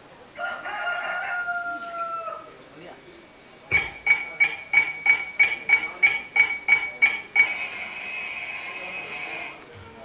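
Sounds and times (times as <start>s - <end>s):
clock ticking: 3.7s - 8.0s
alarm clock ringing: 4.0s - 9.7s.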